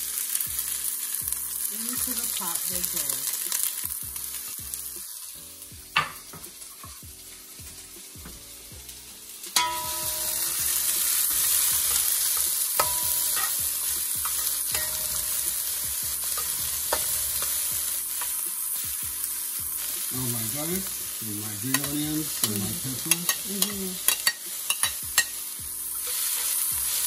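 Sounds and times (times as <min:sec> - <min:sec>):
onions sizzling in a pot: 0:00.0 - 0:27.0.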